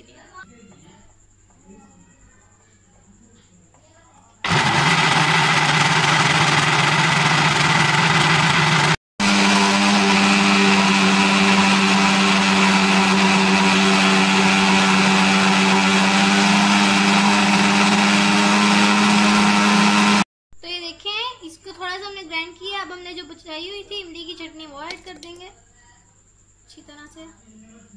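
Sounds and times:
blender motor running: 0:04.4 - 0:20.3.

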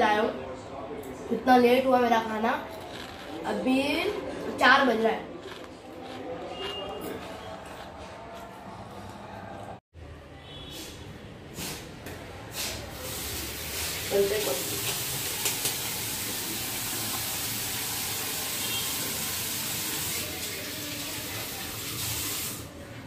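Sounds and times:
tap water running into metal sink: 0:13.1 - 0:22.6.

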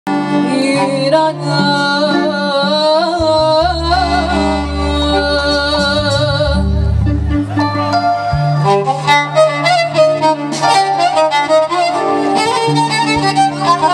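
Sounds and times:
band with keyboards violin drums: 0:00.1 - 0:13.9
woman singing: 0:00.3 - 0:07.2
deep bass line: 0:03.2 - 0:10.5.

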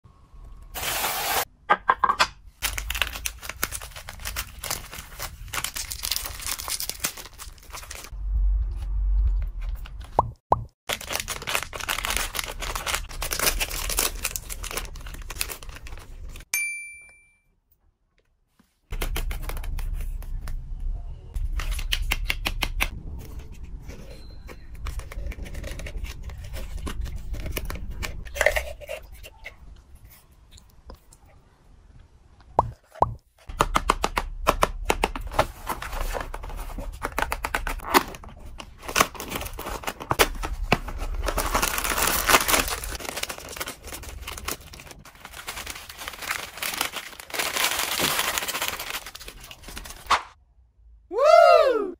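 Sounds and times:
plastic wrappers crinkling: 0:02.6 - 0:08.1, 0:10.9 - 0:16.5, 0:35.7 - 0:50.1.

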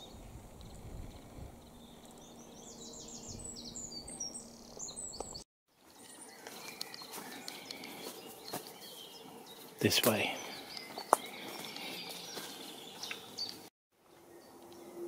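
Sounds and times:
songbird chirping: 0:00.0 - 0:15.0
faint ticks and rustles: 0:00.5 - 0:02.2, 0:05.2 - 0:14.8.

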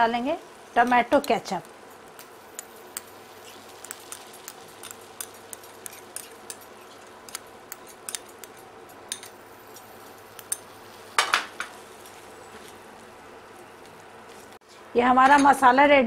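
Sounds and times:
wooden spatula stirring in a pan: 0:00.5 - 0:08.6.

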